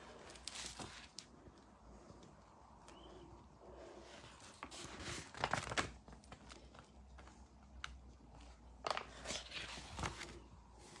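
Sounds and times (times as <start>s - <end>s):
paper pages rustling: 0.0s - 1.3s, 4.1s - 11.0s.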